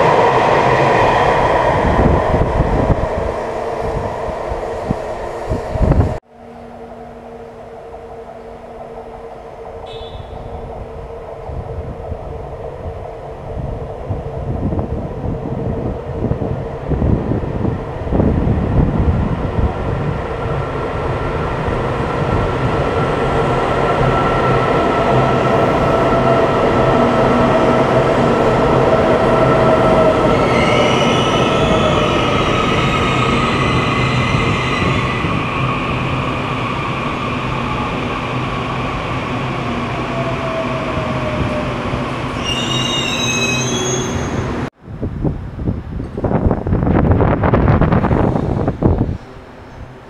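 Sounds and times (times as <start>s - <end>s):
wheel squeal: 42.3s - 44.6s.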